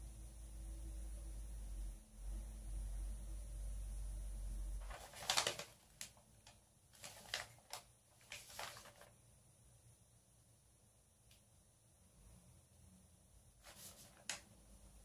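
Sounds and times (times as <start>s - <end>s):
paper rustling and crinkling: 4.8s - 9.1s, 13.6s - 14.5s.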